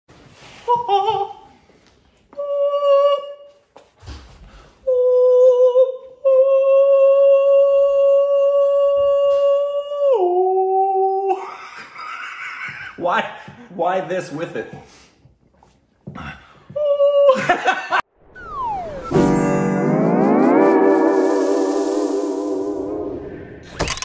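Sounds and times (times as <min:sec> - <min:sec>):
man singing in falsetto: 0:02.3 - 0:03.6, 0:04.8 - 0:11.6, 0:16.7 - 0:17.6.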